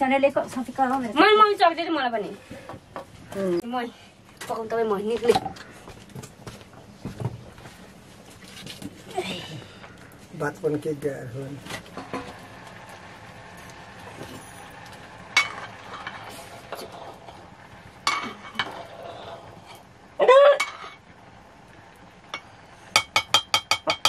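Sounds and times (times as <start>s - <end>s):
metal ladle scraping in a pot: 15.4s - 19.8s, 20.6s - 21.0s.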